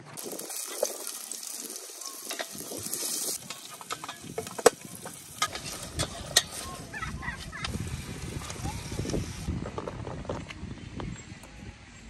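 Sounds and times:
onion and garlic sizzling in a pot: 0.0 - 9.5.

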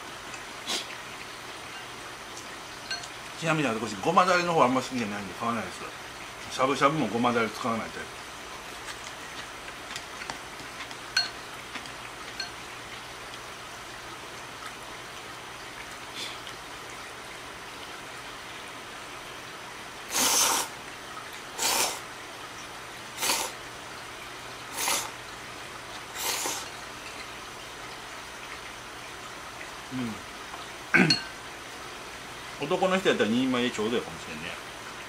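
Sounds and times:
person slurping noodles: 20.1 - 20.8, 21.6 - 22.0, 23.2 - 23.6, 24.7 - 25.2, 26.2 - 26.7.

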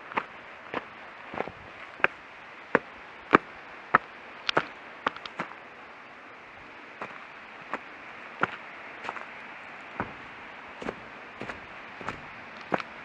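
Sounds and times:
faint steady hiss: 0.0 - 13.0
footsteps on gravel: 0.1 - 2.2, 7.0 - 13.0.

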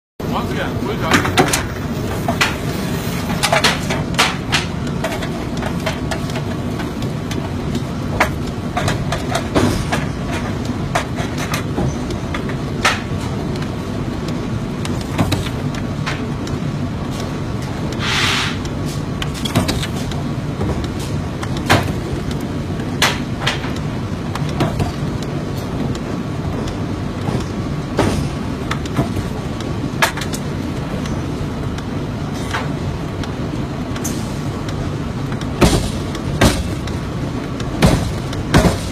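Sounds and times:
metal clanks and knocks: 3.3 - 7.0, 8.1 - 13.4, 35.6 - 37.0, 37.8 - 38.9
short hissing burst: 18.0 - 18.6.

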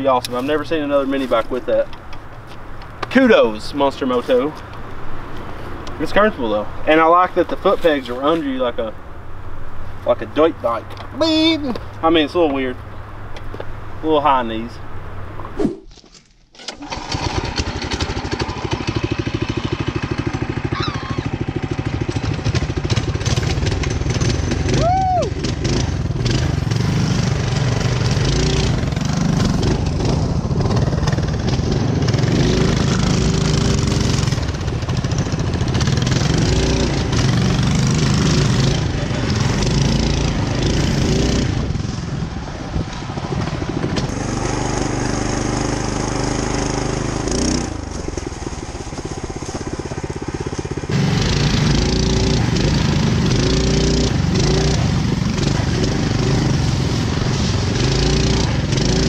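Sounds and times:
mini bike engine running: 16.7 - 59.0.

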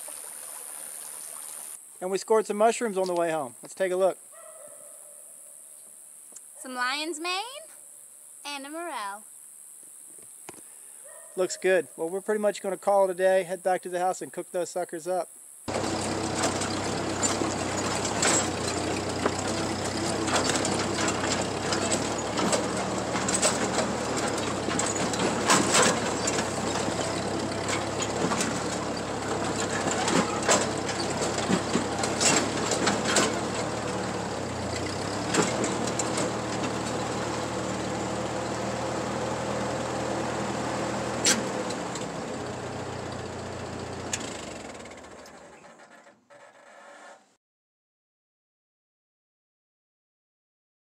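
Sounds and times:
clanks and rattles: 15.7 - 37.6
tractor engine running: 15.7 - 46.5.

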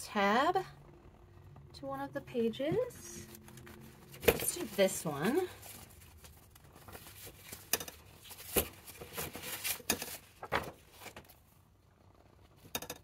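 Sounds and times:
paper rustling: 3.2 - 11.4.

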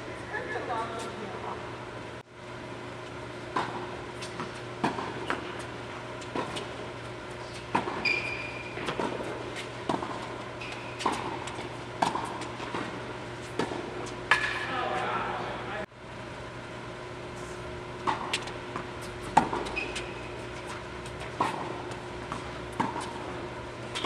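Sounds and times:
low ventilation hum: 0.0 - 24.0
shoe squeak: 8.0 - 8.9, 10.6 - 11.0, 19.6 - 20.4.

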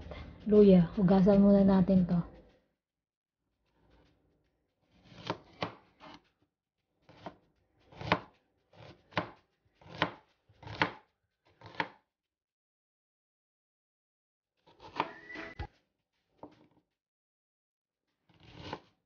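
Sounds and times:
knife chopping on cutting board: 4.9 - 6.2, 7.1 - 12.0, 18.3 - 18.8.

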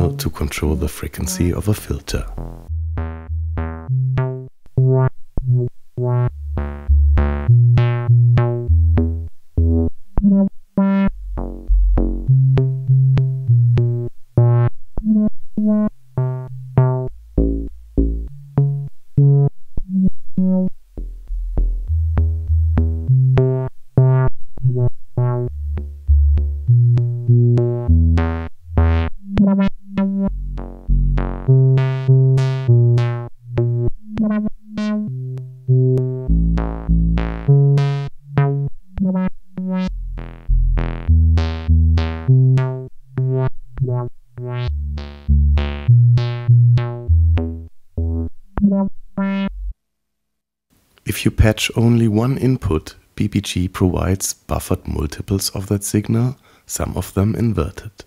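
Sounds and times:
synthesizer short notes: 0.0 - 8.1.

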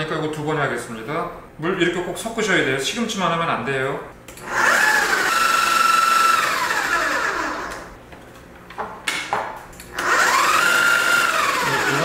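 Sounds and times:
food processor motor whine: 4.4 - 7.9, 10.0 - 12.0.

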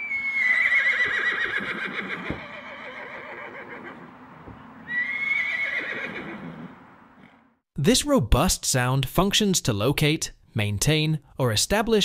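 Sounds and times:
horse neighing: 0.0 - 4.1, 4.8 - 6.8.

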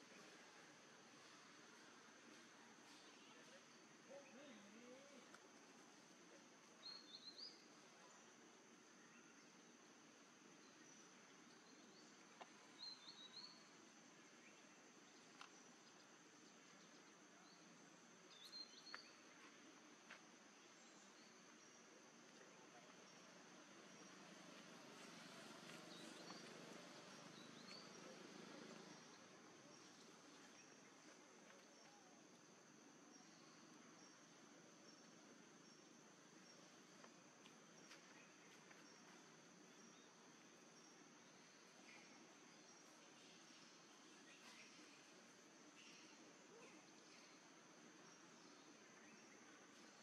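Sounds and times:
high insect hum: 0.0 - 50.0
bird chirping: 22.7 - 32.1.

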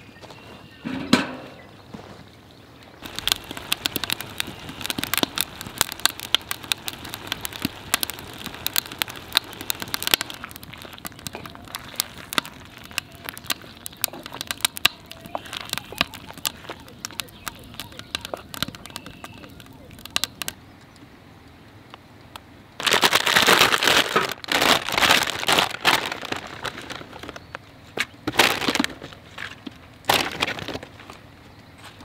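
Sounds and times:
log thumping into metal fire pit: 0.8 - 1.7
wood fire crackling and popping: 3.0 - 27.7.

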